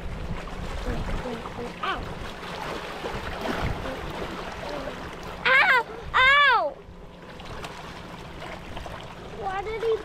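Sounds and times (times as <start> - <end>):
waves lapping against rocks: 0.0 - 6.1, 7.1 - 10.0
child exclaiming: 5.4 - 6.8.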